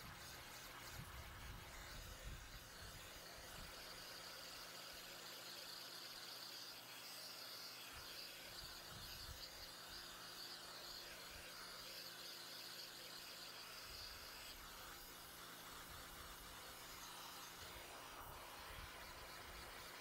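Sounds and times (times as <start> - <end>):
insect chirping trill: 3.8 - 14.6.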